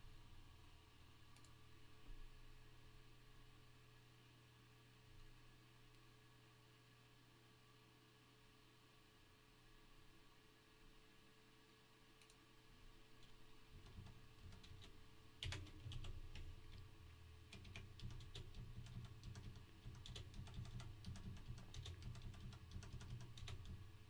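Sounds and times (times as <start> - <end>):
computer keyboard typing: 13.7 - 23.9.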